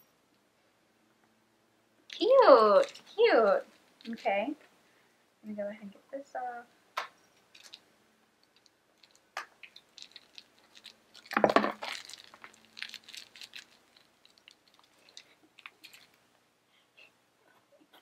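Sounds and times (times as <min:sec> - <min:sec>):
packaging clicks and rustles: 0:07.4 - 0:07.8, 0:08.4 - 0:16.2.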